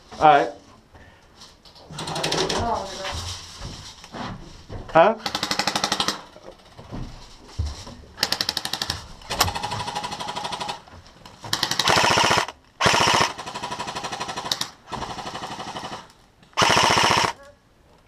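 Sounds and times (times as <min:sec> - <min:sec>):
airsoft guns firing bursts: 0:05.2 - 0:06.3, 0:08.2 - 0:10.9, 0:11.5 - 0:17.4.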